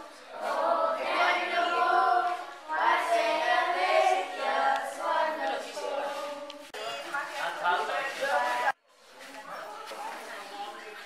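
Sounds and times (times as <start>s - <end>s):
group of voices singing: 0.0s - 7.2s.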